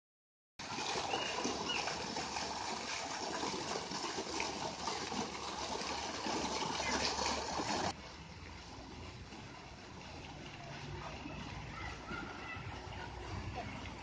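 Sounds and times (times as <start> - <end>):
fountain water splashing: 0.6 - 14.0.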